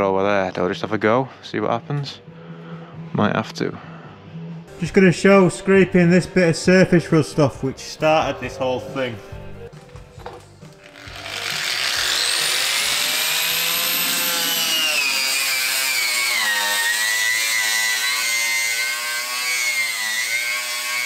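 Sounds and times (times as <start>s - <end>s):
angle grinder grinding metal: 10.7s - 21.0s.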